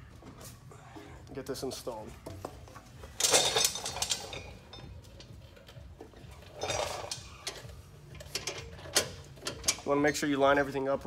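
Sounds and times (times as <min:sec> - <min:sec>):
metal exhaust clanking and scraping: 0:02.7 - 0:10.4.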